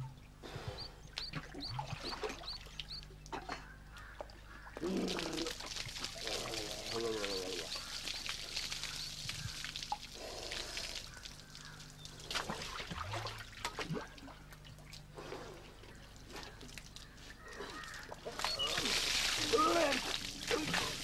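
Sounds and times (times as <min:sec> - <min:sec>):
water splashing onto stone: 0:04.8 - 0:14.0, 0:17.8 - 0:21.0.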